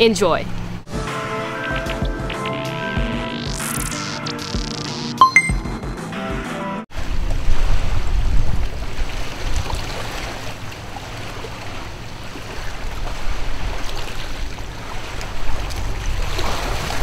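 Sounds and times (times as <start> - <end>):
water lapping against shore: 7.0 - 17.0.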